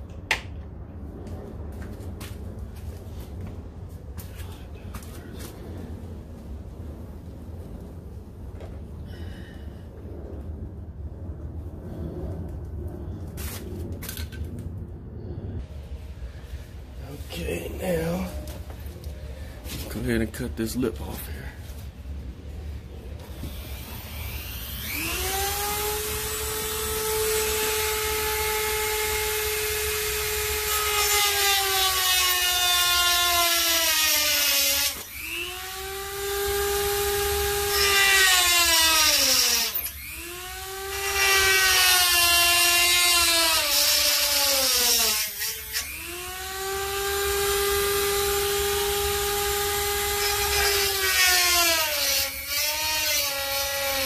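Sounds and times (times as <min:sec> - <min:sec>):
rotary tool cutting metal: 0:23.5 - 0:54.0.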